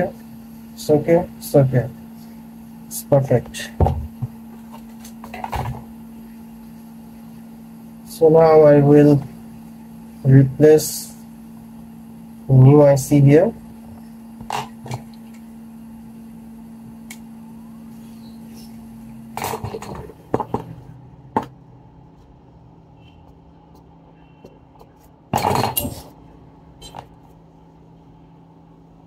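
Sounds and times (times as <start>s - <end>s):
low hum of bench equipment: 0.0s - 29.0s.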